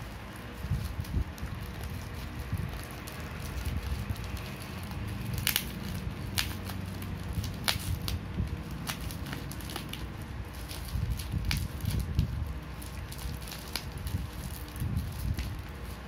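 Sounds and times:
plastic packaging crinkling: 0.0s - 16.0s.

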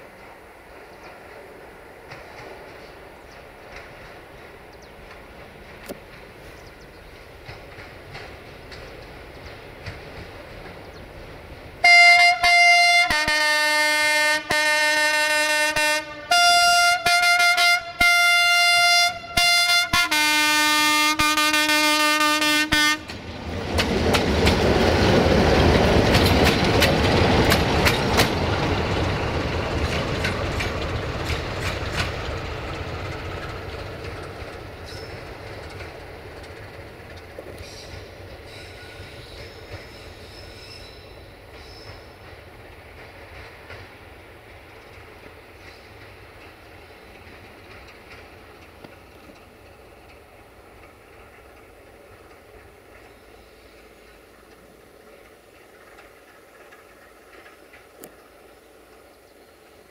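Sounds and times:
wheels clicking over rail joints: 0.1s - 12.8s, 22.4s - 59.9s
locomotive multi-tone horn blasts: 11.8s - 23.2s.

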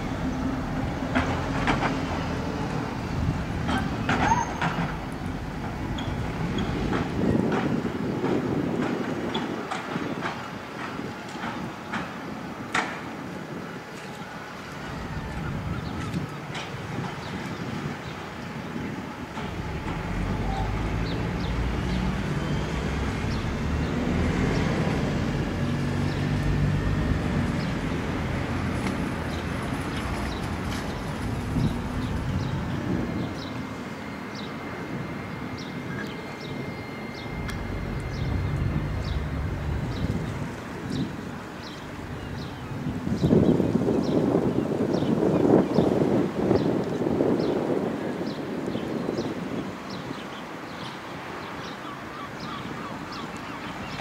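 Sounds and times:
tram running rumble: 0.0s - 51.8s
low mechanical drone: 14.7s - 44.2s.

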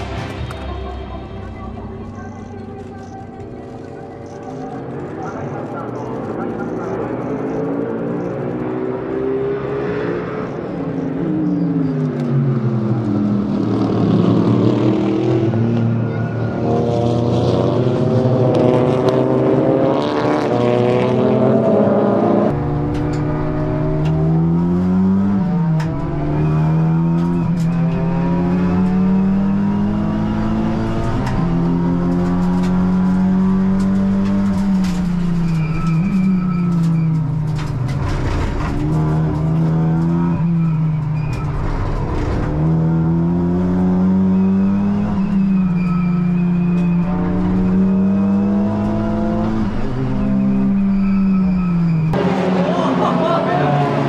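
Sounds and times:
race car engine shifting gears: 16.6s - 54.0s.

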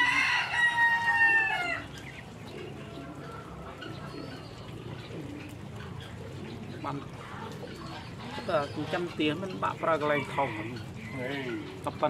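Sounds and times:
rooster crowing: 0.0s - 1.9s, 10.0s - 11.7s.

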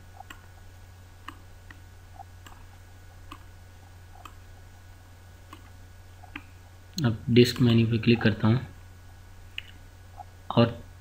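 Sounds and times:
low electrical hum: 0.0s - 11.0s
computer mouse clicks: 0.2s - 0.5s, 1.2s - 1.8s, 3.3s - 3.5s, 4.2s - 4.4s, 5.5s - 6.5s.

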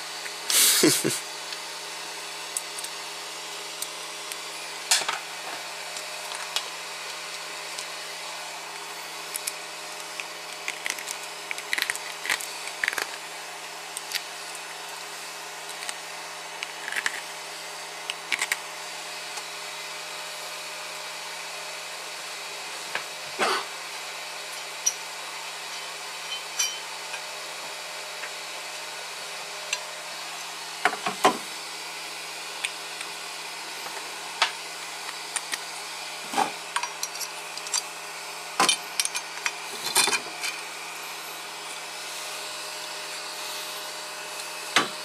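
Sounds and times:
cooling fans whirring: 0.0s - 45.0s.

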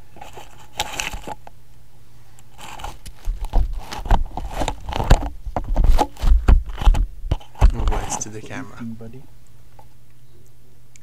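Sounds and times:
rabbit gnawing crunching clicks: 0.2s - 1.8s, 2.4s - 7.9s
close bumps on microphone: 2.8s - 8.6s.

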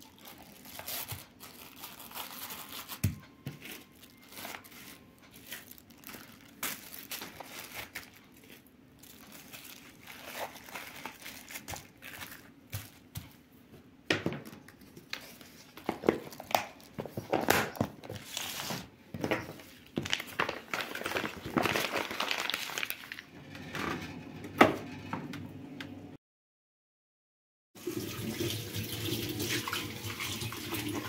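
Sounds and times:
plastic cling film crinkling: 0.0s - 13.4s, 14.7s - 23.4s.

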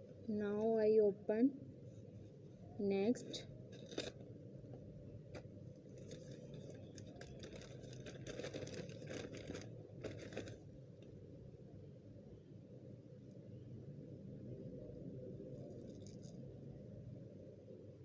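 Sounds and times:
plastic mailer bag crinkling: 5.9s - 10.6s.

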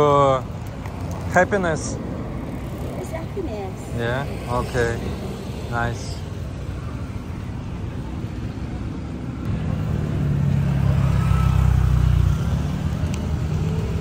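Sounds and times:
steady traffic noise: 0.0s - 14.0s
vehicle engine passing by: 9.4s - 14.0s.

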